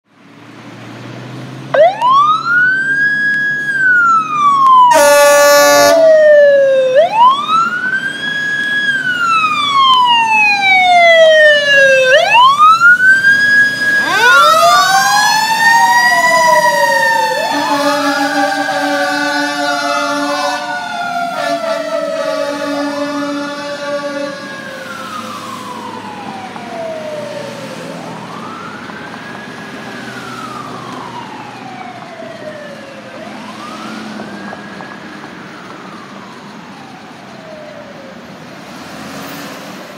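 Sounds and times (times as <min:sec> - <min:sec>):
fire engine siren wailing: 0:00.9 - 0:39.9
second siren: 0:01.7 - 0:38.8
air horn blast: 0:04.9 - 0:06.1, 0:17.4 - 0:24.6.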